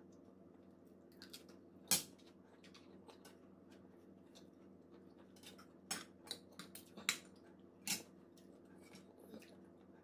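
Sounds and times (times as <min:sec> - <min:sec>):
close-up chewing: 0:02.2 - 0:10.0.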